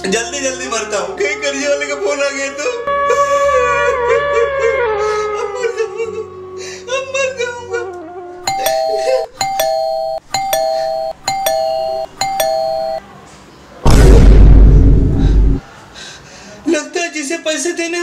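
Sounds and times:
ding-dong doorbell chime: 8.5s - 13.0s.

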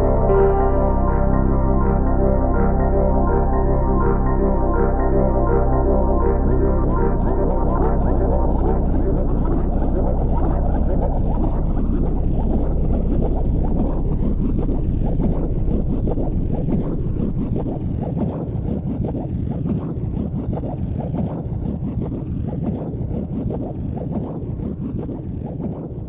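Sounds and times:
low rushing soundtrack: 0.0s - 18.8s.

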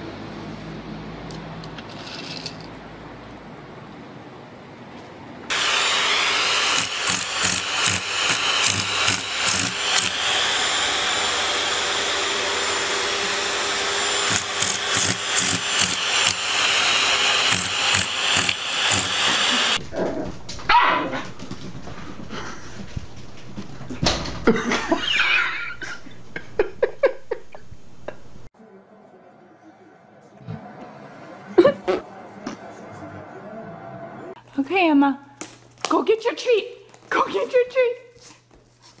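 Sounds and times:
vacuum cleaner running: 5.5s - 19.8s.

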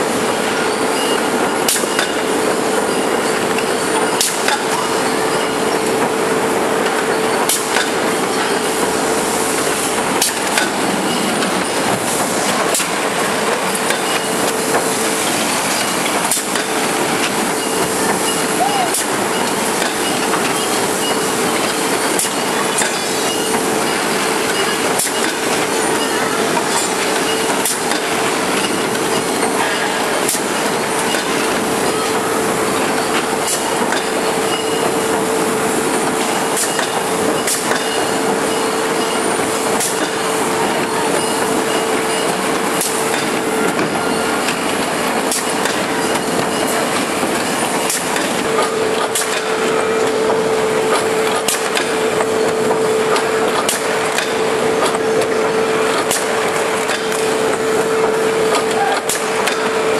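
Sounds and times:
machine humming: 0.0s - 59.9s.

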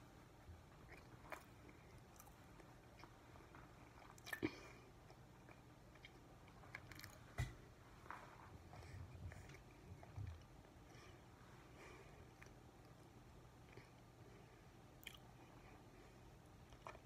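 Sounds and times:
child chewing bread: 0.0s - 17.0s.

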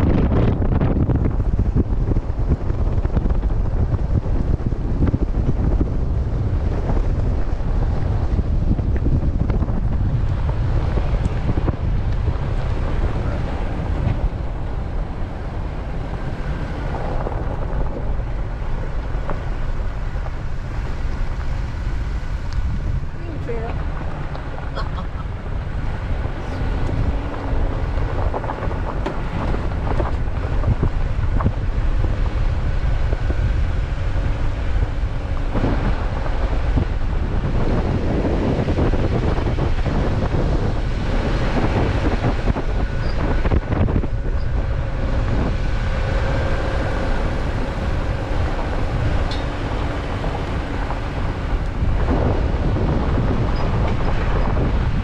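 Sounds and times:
engine hum: 0.0s - 55.0s
tyres rumbling on gravel: 0.0s - 55.0s
wind noise on microphone: 0.0s - 55.0s.

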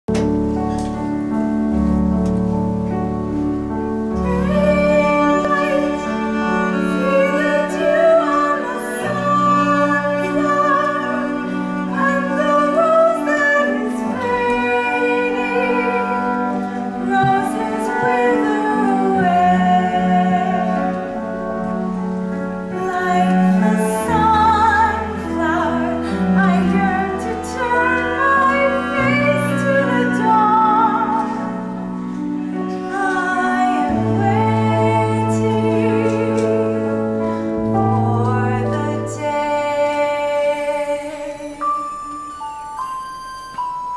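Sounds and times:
held low instrumental chords: 0.1s - 43.9s
woman singing: 4.0s - 21.7s, 22.7s - 42.9s.

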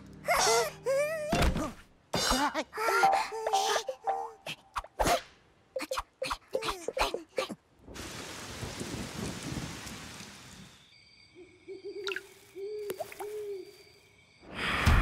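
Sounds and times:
rain falling: 7.8s - 10.8s.

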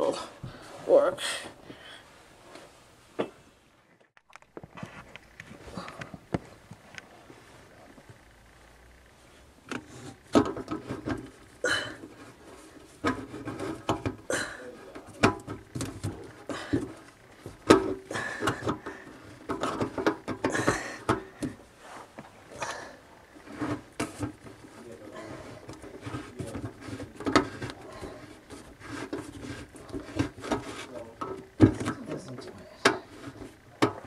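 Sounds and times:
plastic pipe clicks and scraping: 9.6s - 21.6s, 23.4s - 34.0s.

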